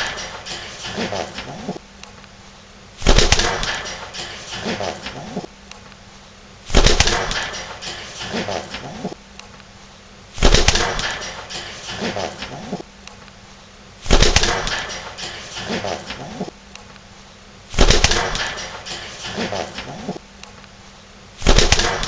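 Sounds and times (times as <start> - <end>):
pigeon cooing: 0.8 - 1.8
loud burst of noise: 3.0 - 5.2, 6.7 - 8.8, 10.4 - 12.5, 14.0 - 16.1, 17.7 - 19.7.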